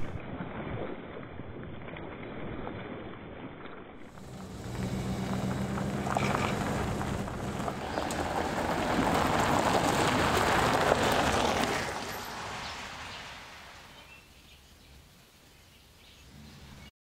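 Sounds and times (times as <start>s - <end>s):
van engine hum: 4.1s - 14.2s, 16.2s - 16.9s
tyres crunching on gravel: 4.1s - 14.3s.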